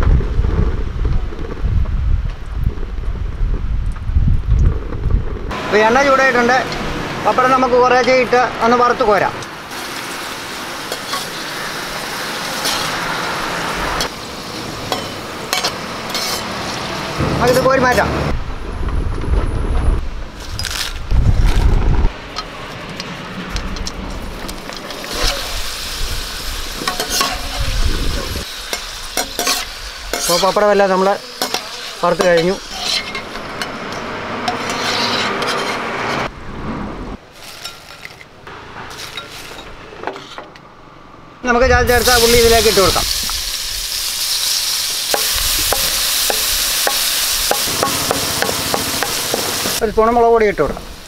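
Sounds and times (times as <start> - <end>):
deep-frying sizzle: 9.7 - 17.2, 24.2 - 33.0, 41.9 - 49.9
crisps rustling against steel skimmer: 37.3 - 40.3.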